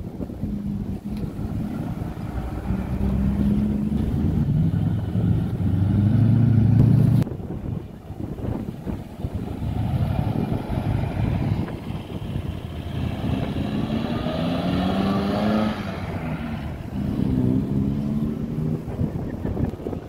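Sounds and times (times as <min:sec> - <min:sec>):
cars driving past: 0:00.0 - 0:07.2, 0:08.1 - 0:20.0
engine rumble: 0:00.0 - 0:20.0.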